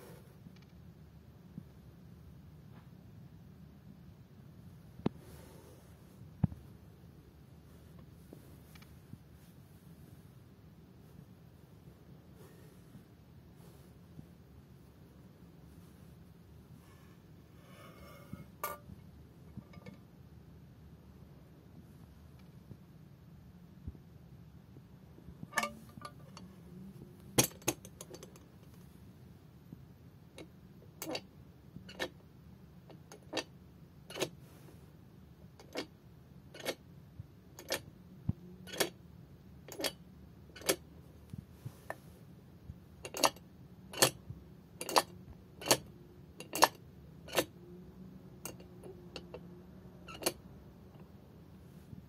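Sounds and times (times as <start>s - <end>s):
mechanical bank metallic clacks: 40.6s - 40.8s.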